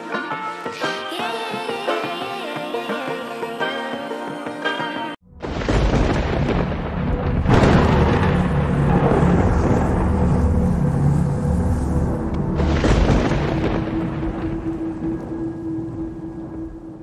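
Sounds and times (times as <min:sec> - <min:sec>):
song playing: 0:00.0 - 0:05.6
thunder rumble: 0:05.3 - 0:17.0
electric crackling: 0:05.4 - 0:15.3.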